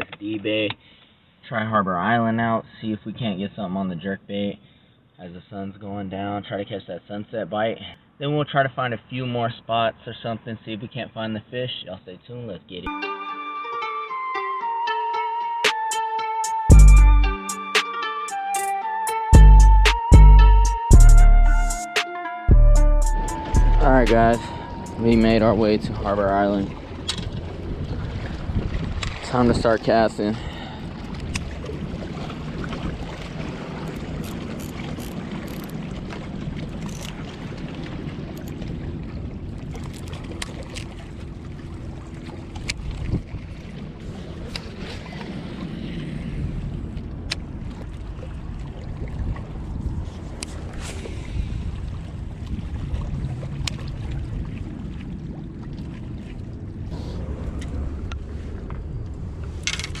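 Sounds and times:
wind buffeting microphone: 23.3 - 55.3, 56.7 - 60.0.

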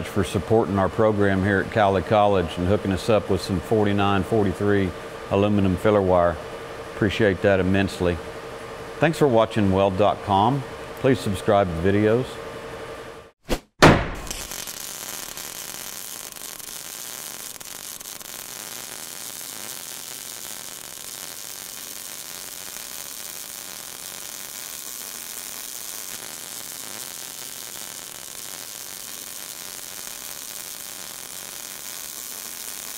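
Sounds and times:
steady hiss: 14.3 - 32.9.

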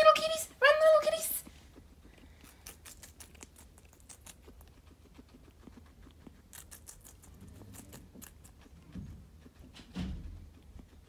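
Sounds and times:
guinea pig munching lettuce: 0.0 - 11.0.

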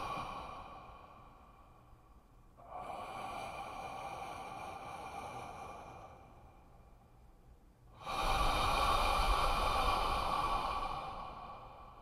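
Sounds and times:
slow heavy human breathing: 0.0 - 7.2, 8.0 - 12.0.

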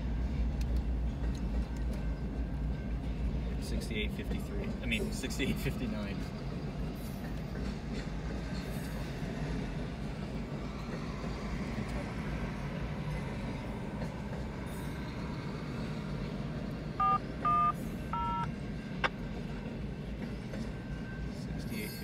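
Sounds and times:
two-tone keypad beeps: 17.0 - 18.5.

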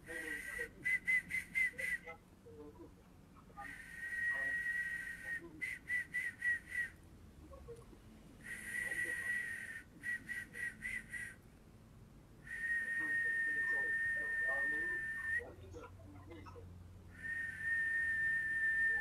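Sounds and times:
person whistling high note: 3.6 - 7.0, 8.4 - 11.4, 12.5 - 15.5, 17.2 - 19.0.

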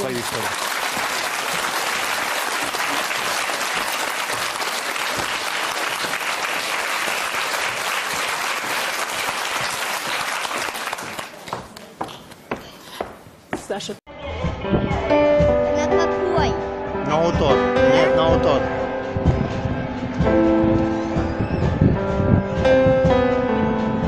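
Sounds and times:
studio audience applauding: 0.0 - 11.4.

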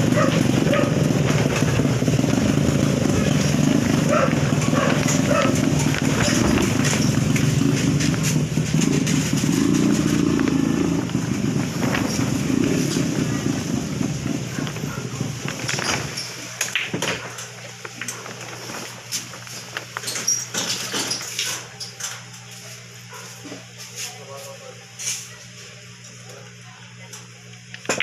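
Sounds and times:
motorcycle engine running: 0.0 - 20.4.

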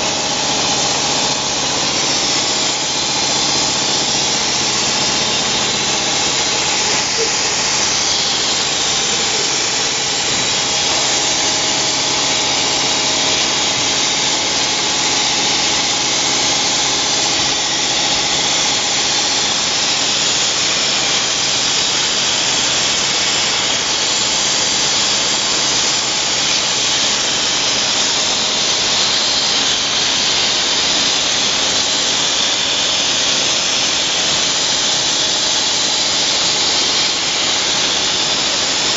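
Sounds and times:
high hiss: 0.0 - 15.8.

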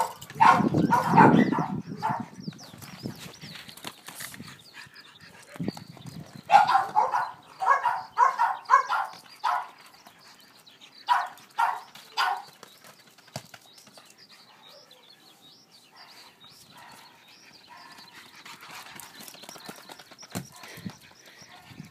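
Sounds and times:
dog barking excitedly: 0.0 - 2.3, 6.5 - 9.8, 11.1 - 12.5.

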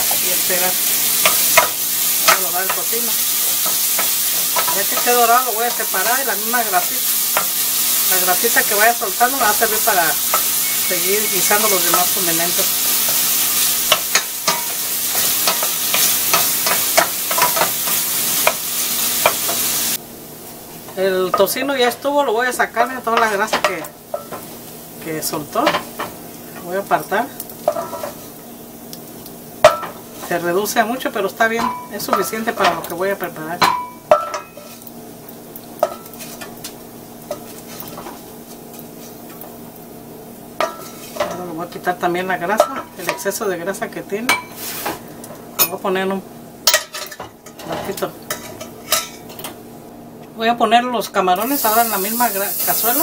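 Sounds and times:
bacon sizzling in pan: 0.0 - 53.0
wooden spoon scraping a pan: 35.8 - 36.7, 37.3 - 39.4, 40.6 - 41.4.

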